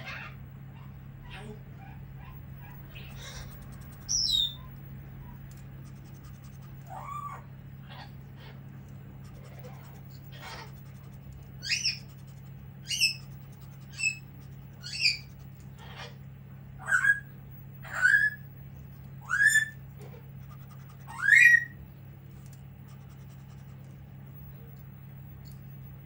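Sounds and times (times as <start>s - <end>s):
parrot screeching: 0.0s - 4.7s, 6.9s - 8.5s, 11.6s - 12.0s, 12.8s - 13.3s, 14.8s - 16.2s, 16.8s - 18.4s, 19.2s - 19.8s, 21.0s - 21.8s.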